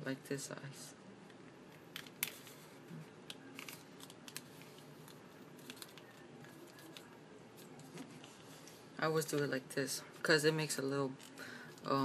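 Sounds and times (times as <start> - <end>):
paper rustling and crackling: 3.5 - 9.5.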